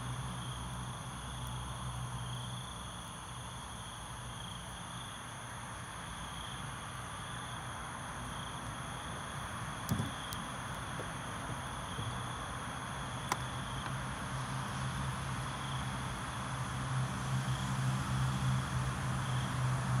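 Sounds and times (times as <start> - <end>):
insect calls: 0.4 - 16.4.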